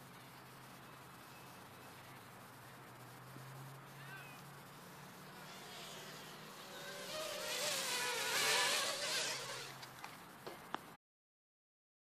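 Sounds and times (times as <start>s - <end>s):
drone propellers buzzing: 4.7s - 9.9s.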